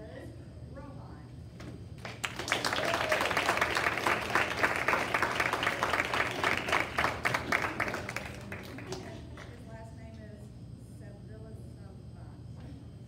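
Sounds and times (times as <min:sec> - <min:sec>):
audience clapping: 0:02.0 - 0:09.6.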